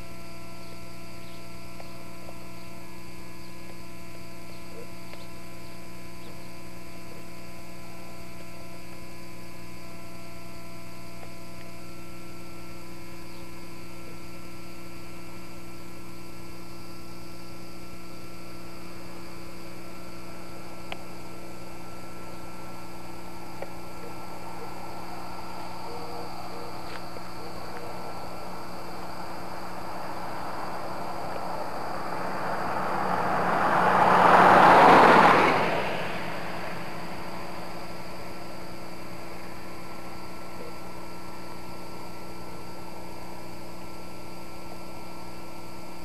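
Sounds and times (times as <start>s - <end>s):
electrical hum: 0.0s - 46.0s.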